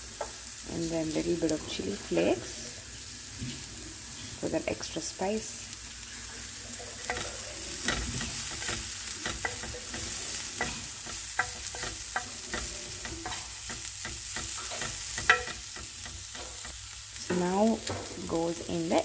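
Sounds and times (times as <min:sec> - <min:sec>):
vegetables sizzling in pan: 0:00.0 - 0:19.0
spatula scraping and tapping pan: 0:06.2 - 0:18.4.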